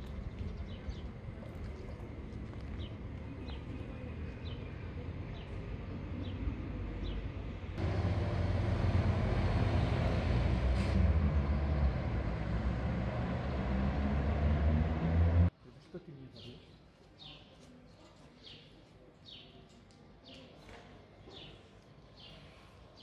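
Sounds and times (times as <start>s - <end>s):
road traffic rumble: 0.0s - 15.5s
cars passing: 7.5s - 15.5s.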